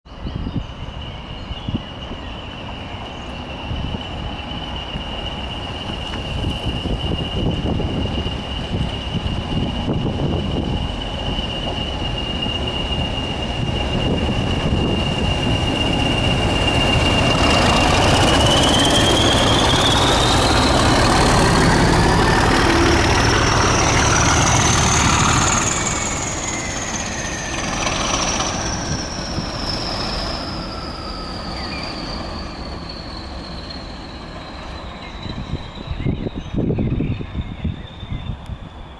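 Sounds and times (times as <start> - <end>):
engine and wheel rumble: 0.1 - 38.9.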